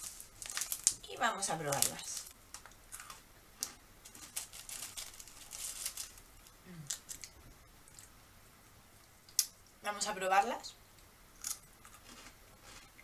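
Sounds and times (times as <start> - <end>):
plastic wrapper crinkling: 0.0 - 7.4.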